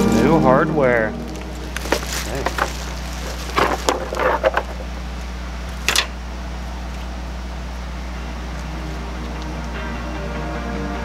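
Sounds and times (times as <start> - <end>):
steady low hum: 0.0 - 11.0
cardboard box rustles and clicks: 1.4 - 4.9.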